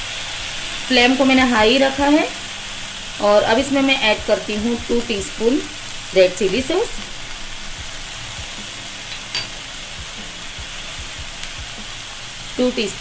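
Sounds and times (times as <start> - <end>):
vegetables sizzling in a frying pan: 0.0 - 13.0.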